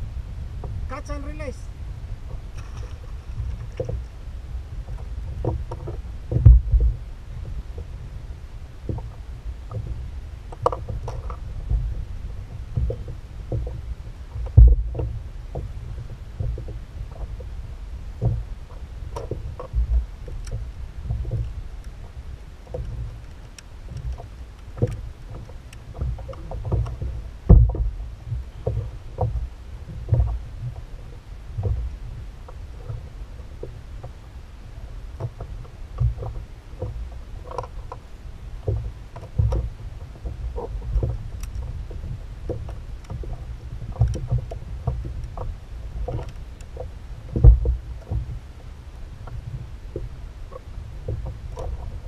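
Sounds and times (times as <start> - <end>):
steady low rumble: 0.0 - 52.0
knocks on kayak hull: 26.1 - 29.4.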